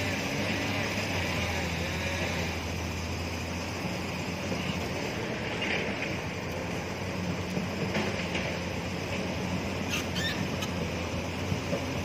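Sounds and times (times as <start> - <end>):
truck engine droning: 0.0 - 12.0.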